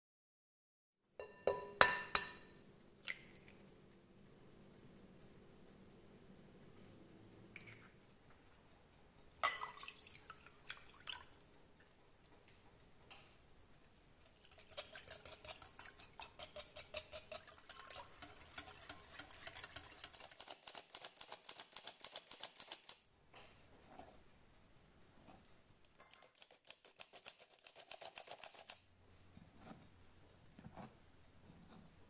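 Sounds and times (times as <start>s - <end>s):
whisk clinking in glass bowl: 14.3s - 20.5s.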